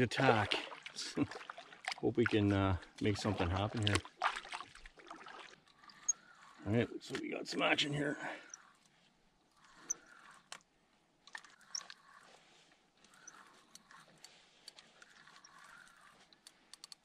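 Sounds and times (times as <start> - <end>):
fishing rod swishing: 11.4 - 16.3
fishing reel clicks and taps: 13.0 - 17.0.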